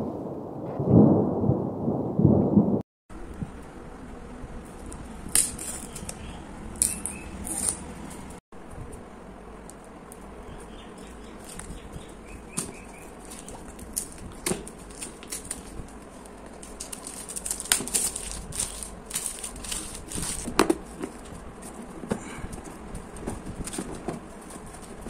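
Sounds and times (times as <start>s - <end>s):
plastic shrink-wrap crinkling: 12.4s - 21.8s.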